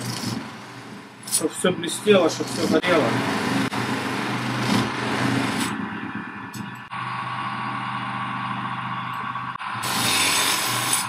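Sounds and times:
polishing motor humming: 9.6 - 11.0
blade hissing against polishing wheel: 9.8 - 11.0.

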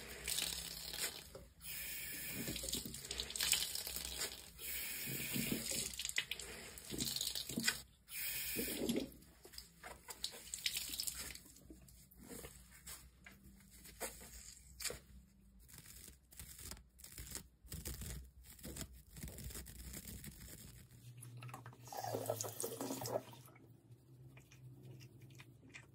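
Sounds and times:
sponge squelching: 0.0 - 1.5
tap water running: 0.0 - 11.5, 21.4 - 23.5.

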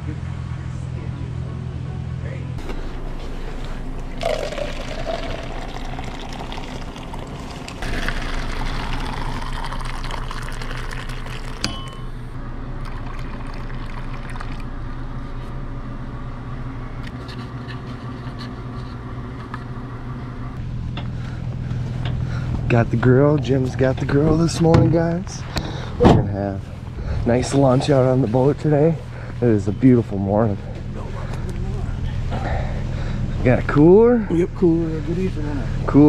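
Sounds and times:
coffee pouring into cup: 4.0 - 11.7, 12.8 - 14.6.

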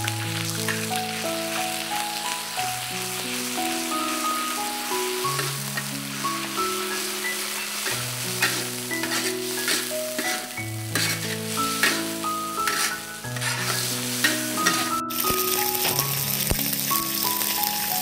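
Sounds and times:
oil sizzling in a wok: 0.0 - 18.0
slow background music: 0.0 - 18.0
metal spatula scraping a wok: 5.3 - 15.0.

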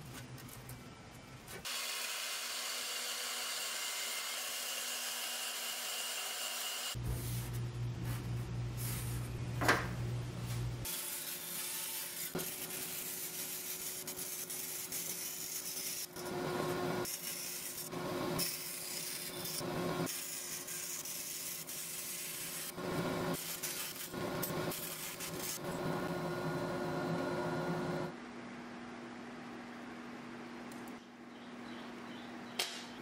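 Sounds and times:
bandsaw motor humming: 1.7 - 7.0.

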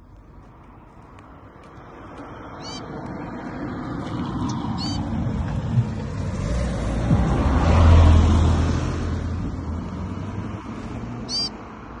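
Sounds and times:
vehicle passing rumble: 0.0 - 12.0
short high bird chirp: 2.6 - 2.9, 4.8 - 5.0, 11.3 - 11.6.

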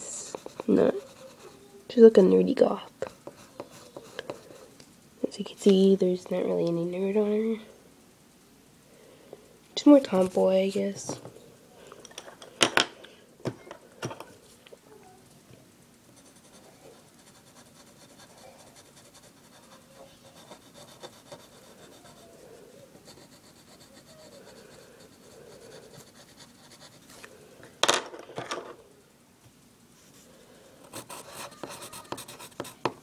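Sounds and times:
pencil scratching on paper: 0.3 - 1.6, 3.0 - 4.6, 16.2 - 22.2, 23.0 - 27.2, 30.9 - 32.9.

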